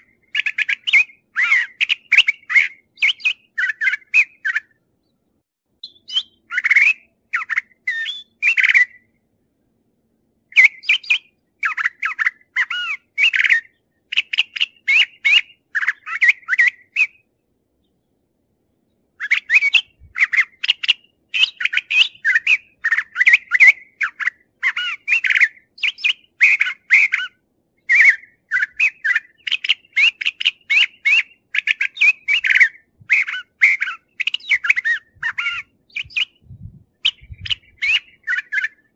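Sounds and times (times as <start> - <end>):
bird singing varied phrases: 0.0 - 38.9.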